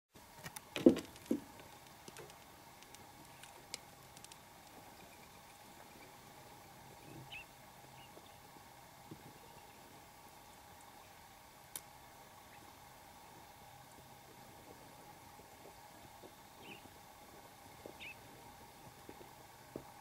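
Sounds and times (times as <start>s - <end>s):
faint steady hum: 0.2s - 20.0s
faint clicks: 0.4s - 5.6s
bird chirp: 4.9s - 6.2s, 7.0s - 8.4s, 16.5s - 16.9s, 17.9s - 18.2s.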